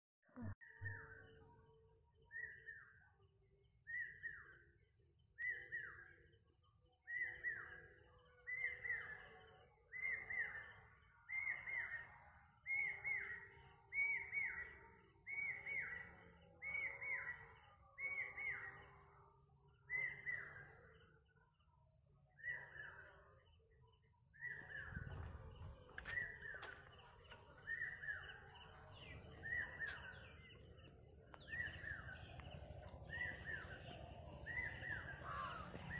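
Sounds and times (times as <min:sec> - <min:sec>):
faint high chirping: 0:03.8 - 0:35.9.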